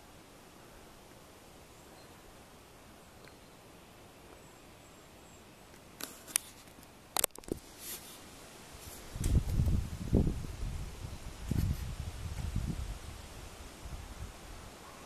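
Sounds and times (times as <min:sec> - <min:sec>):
wind buffeting microphone: 0:09.0 - 0:14.7.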